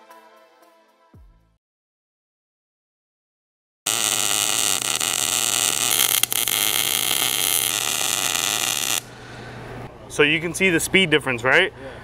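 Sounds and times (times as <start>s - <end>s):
welding arc crackling hiss: 3.9s - 9.1s.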